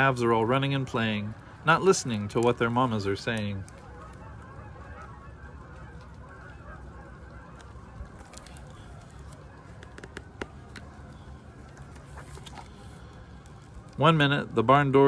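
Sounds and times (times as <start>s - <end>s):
geese honking in the distance: 0.0s - 15.0s.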